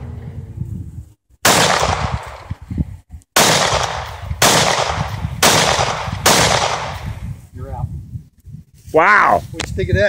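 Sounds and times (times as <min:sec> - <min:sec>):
pistol shots: 0:01.4 - 0:02.5, 0:03.4 - 0:07.0.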